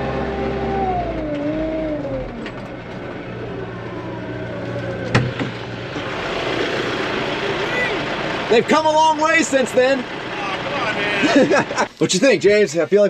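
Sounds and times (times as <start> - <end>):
tractor diesel engine running: 0.0 - 11.9.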